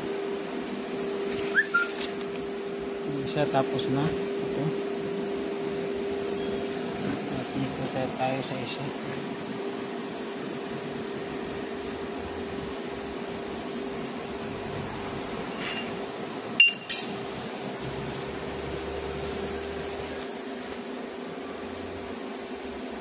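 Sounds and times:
milling machine humming: 0.0s - 23.0s
sharp metallic clinks: 16.6s - 17.1s.

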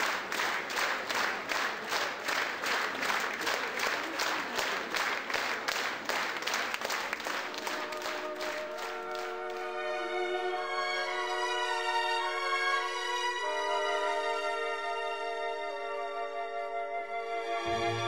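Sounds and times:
audience clapping in unison: 0.0s - 10.0s
orchestral music with strings: 6.8s - 18.0s.

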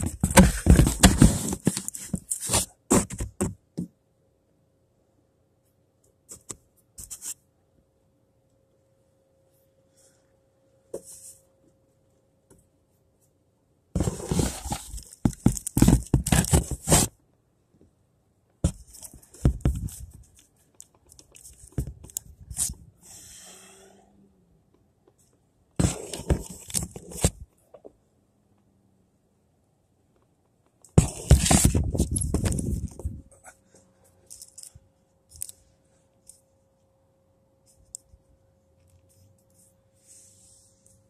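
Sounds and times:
close rustling and crackling: 14.0s - 17.1s, 30.9s - 34.7s.

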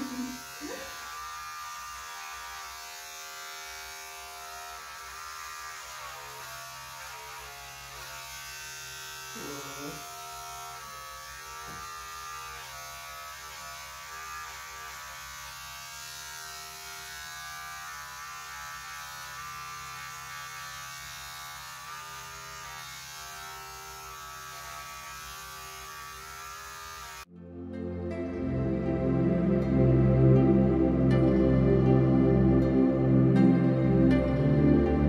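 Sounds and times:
electric hair clippers buzzing: 0.0s - 27.3s.

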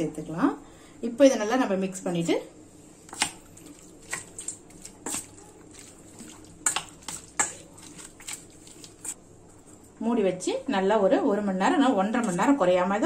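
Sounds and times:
marinade squelching: 2.8s - 9.2s.

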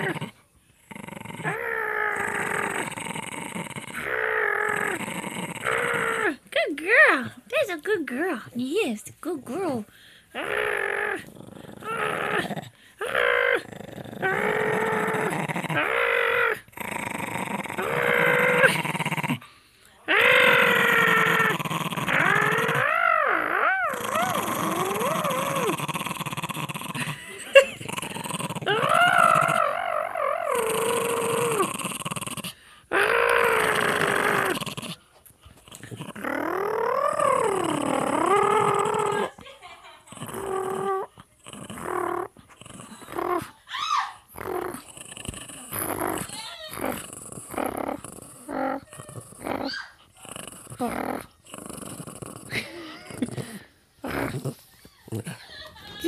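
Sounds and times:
small dog growling: 0.0s - 8.5s, 9.5s - 39.4s, 40.0s - 56.0s.

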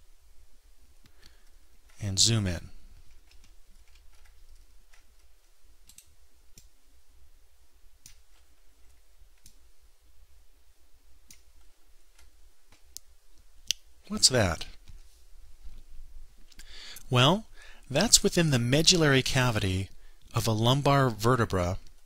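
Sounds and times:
low steady hum: 0.0s - 22.0s
computer mouse clicks: 3.1s - 6.7s, 8.0s - 9.6s, 11.2s - 13.1s.

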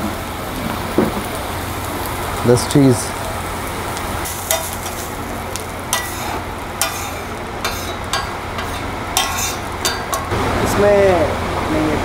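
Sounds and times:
vegetables sizzling: 0.0s - 12.0s
metal spatula scraping a griddle: 4.3s - 5.1s, 5.9s - 10.3s.

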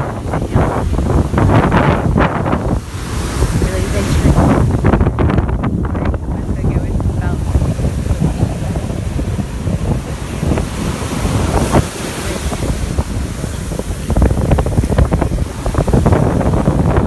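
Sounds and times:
surf breaking on sand: 0.0s - 17.0s
wind buffeting microphone: 0.0s - 17.0s.

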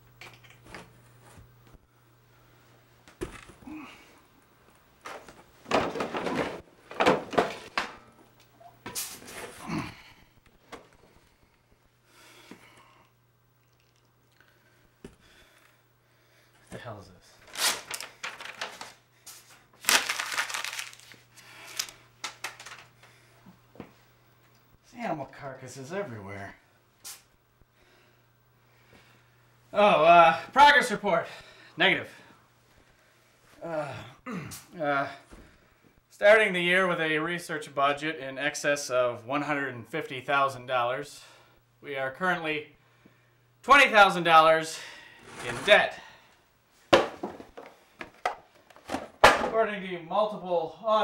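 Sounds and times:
papers crinkling and rustling: 17.4s - 23.0s.

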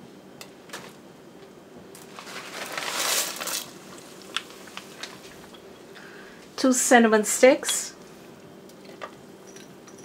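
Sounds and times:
plastic bag crinkling: 1.9s - 5.5s.

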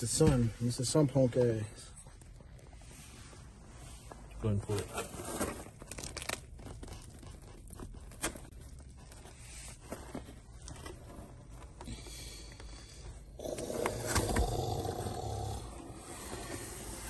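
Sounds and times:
pizza crust and cardboard tearing: 4.8s - 8.6s.

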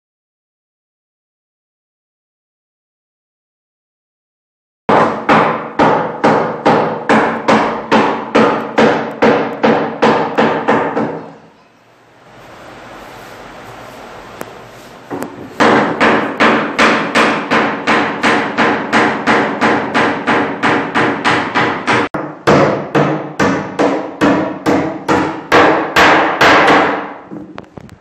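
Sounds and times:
hammer nailing into plywood: 4.9s - 11.3s, 15.1s - 27.5s.

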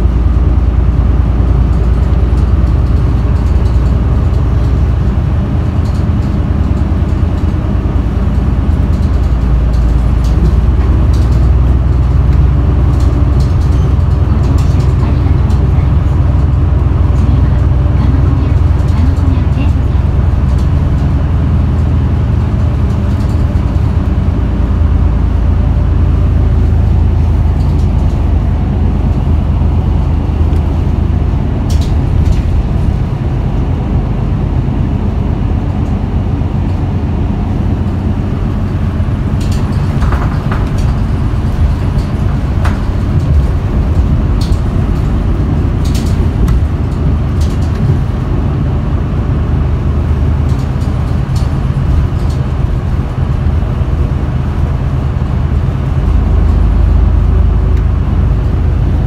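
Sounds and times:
bus engine droning: 0.0s - 59.0s
clicks and rattles: 1.6s - 7.7s, 8.3s - 24.3s, 26.6s - 30.9s, 31.6s - 33.6s, 39.1s - 48.2s, 50.3s - 53.4s.

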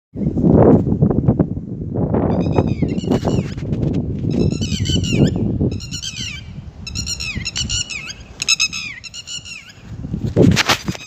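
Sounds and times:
lapwings giving sharp alarm calls: 2.3s - 3.6s, 4.3s - 9.9s.

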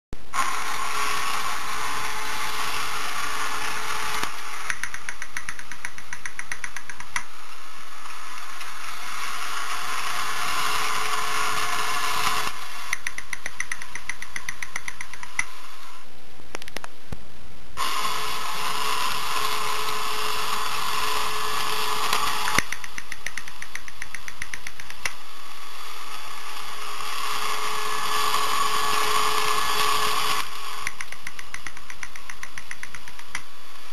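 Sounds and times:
toy motor whirring: 0.3s - 15.6s, 17.8s - 33.5s
rapid even clicking: 4.2s - 7.3s, 12.9s - 15.5s, 22.5s - 25.2s, 30.8s - 33.5s.

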